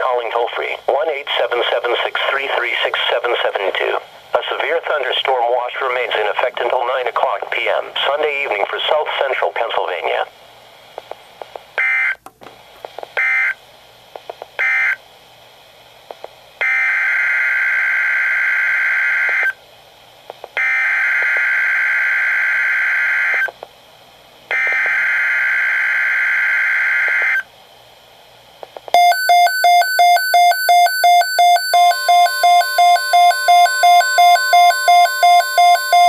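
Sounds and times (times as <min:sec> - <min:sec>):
radio alert beeping: 0:29.0 - 0:36.0
short data bursts: 0:29.0 - 0:36.0
two-tone buzzing data bursts: 0:29.0 - 0:36.0.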